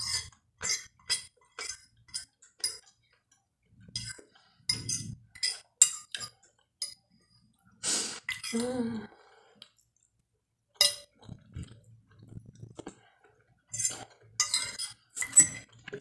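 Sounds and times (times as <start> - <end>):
soft chewing: 1.4 - 8.5, 9.4 - 16.0
fork clinking on glass plate: 13.8 - 15.7.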